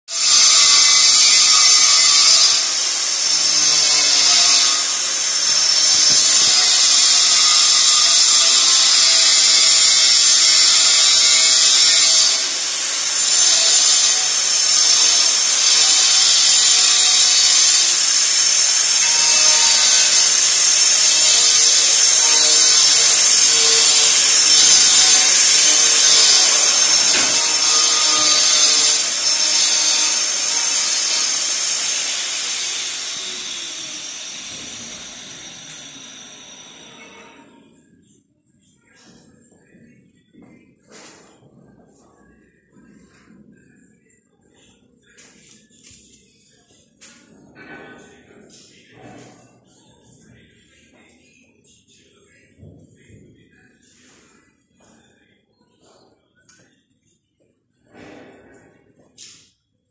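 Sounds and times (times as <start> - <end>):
power tool hissing: 0.2 - 37.0.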